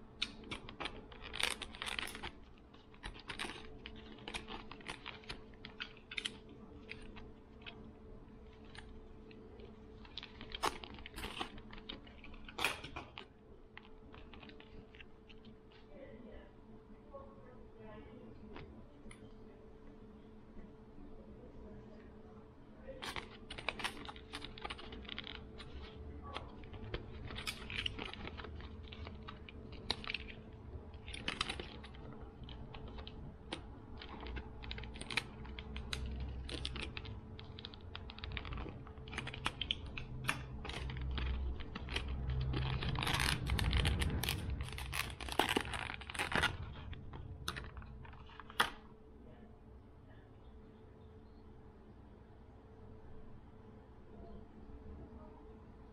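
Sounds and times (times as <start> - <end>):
plastic packaging clicks and crinkles: 0.0 - 15.9, 22.8 - 49.0
faint steady hum: 0.0 - 55.9.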